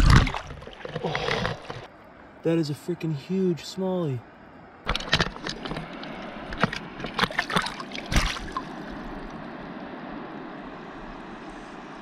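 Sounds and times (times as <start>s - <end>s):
sharp splashes and knocks: 0.0s - 1.9s, 4.9s - 9.4s
river water rushing: 4.9s - 12.0s.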